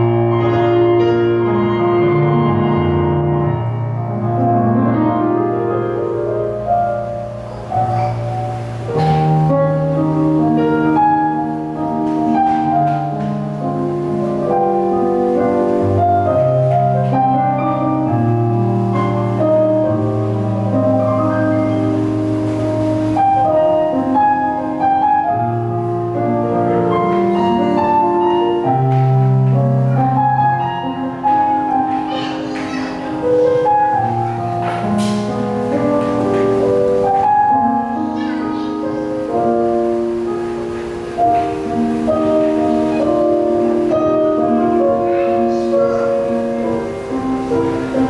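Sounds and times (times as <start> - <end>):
solo piano melody: 0.0 - 48.0.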